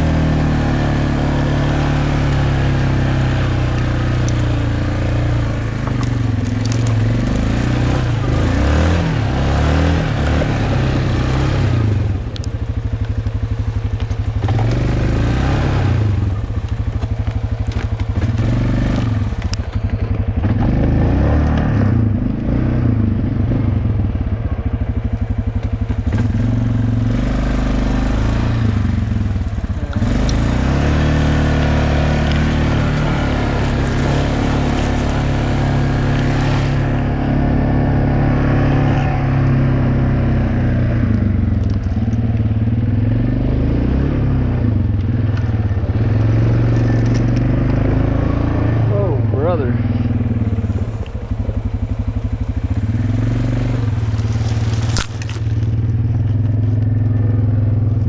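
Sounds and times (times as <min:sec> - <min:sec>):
atv engine revving: 0:00.0 - 0:58.0
tyres crunching on ice: 0:05.5 - 0:07.7, 0:31.6 - 0:36.8, 0:53.8 - 0:57.1.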